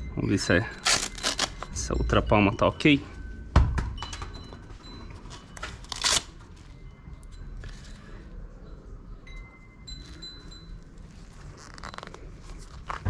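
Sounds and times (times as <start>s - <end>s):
faint high ringing tone: 0.0s - 13.0s
glove rustling and handling: 0.7s - 1.9s, 9.9s - 13.0s.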